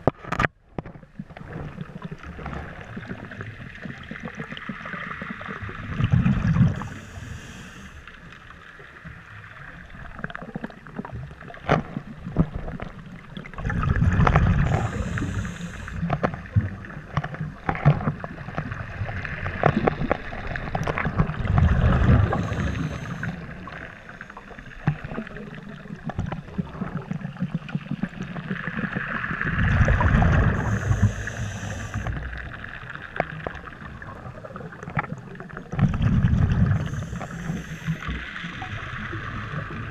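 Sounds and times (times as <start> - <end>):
regulator hiss: 6.8 - 8.1, 14.6 - 16.1, 22.2 - 24.7, 30.5 - 32.1, 36.8 - 38.5
bubbly underwater exhalations: 13.4 - 17.0, 18.0 - 32.3, 34.0 - 39.9.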